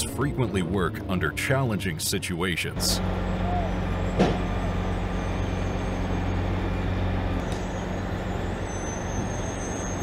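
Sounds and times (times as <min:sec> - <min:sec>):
heavy machine running: 0:02.8 - 0:10.0.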